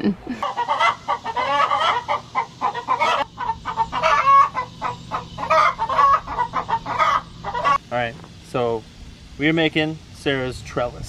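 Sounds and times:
chickens clucking: 0:00.0 - 0:07.8.

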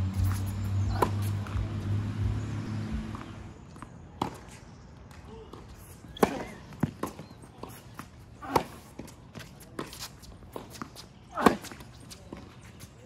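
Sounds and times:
tennis ball struck by racket: 0:00.2 - 0:02.0, 0:05.5 - 0:12.4
footsteps on court: 0:03.0 - 0:13.0.

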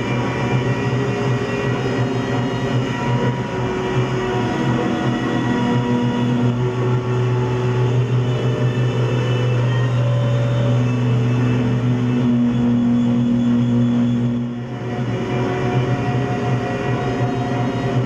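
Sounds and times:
electronic drone music: 0:00.0 - 0:18.0
loud steady low hum: 0:00.0 - 0:18.0
sustained tones: 0:00.0 - 0:18.0.

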